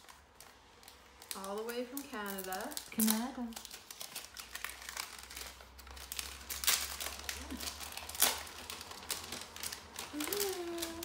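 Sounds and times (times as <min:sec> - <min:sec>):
gift wrap crinkling: 0:00.0 - 0:11.0
paper ripping: 0:00.0 - 0:11.0.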